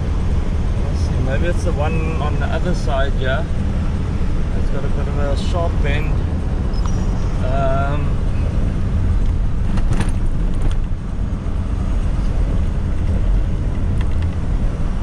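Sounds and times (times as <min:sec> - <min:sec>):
truck engine and tyres rumbling: 0:00.0 - 0:15.0
brief knocks and rattles: 0:09.7 - 0:10.9.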